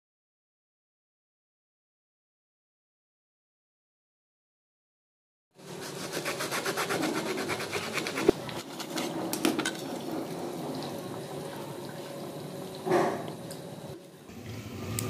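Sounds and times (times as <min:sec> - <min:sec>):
knife sawing through crispy pastry: 0:05.6 - 0:09.2.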